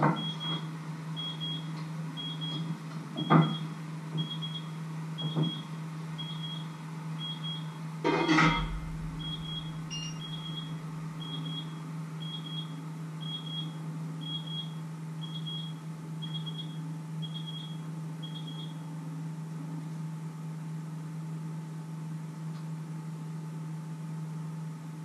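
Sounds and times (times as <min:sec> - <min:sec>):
low hum: 0:08.1 - 0:11.8
kitchen timer double beeps: 0:08.6 - 0:18.7.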